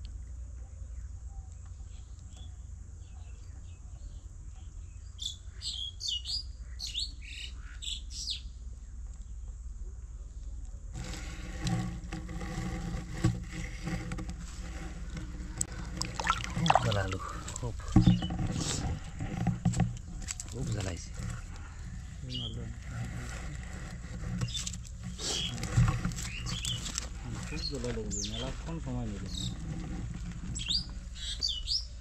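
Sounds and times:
small birds chirping: 0.1s - 10.6s, 20.0s - 22.9s, 24.4s - 29.6s, 30.5s - 32.0s
rough noise with knocks: 11.0s - 28.5s.

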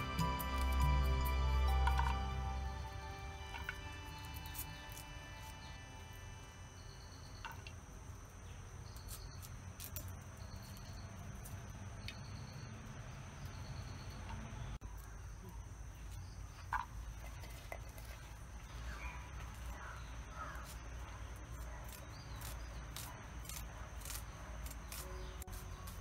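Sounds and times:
high insect drone: 0.0s - 14.7s.

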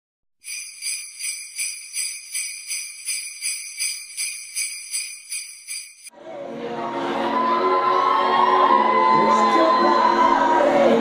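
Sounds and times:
jingle bells shaken: 0.4s - 6.1s.

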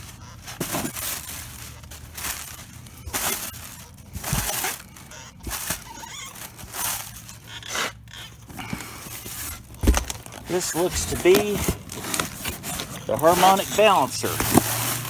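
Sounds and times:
plastic packing crinkling: 0.0s - 15.0s
dull bump: 8.5s - 12.8s.

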